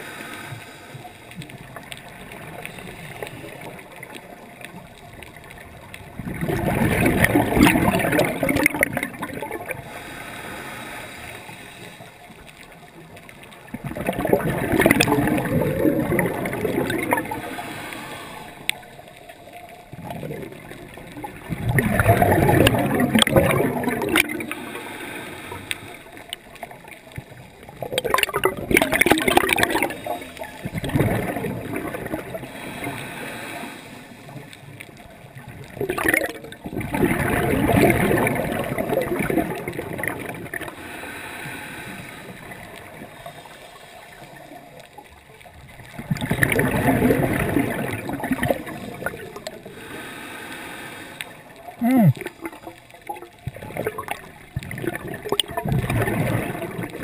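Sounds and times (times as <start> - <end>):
regulator bubbles underwater: 0.0 - 57.0.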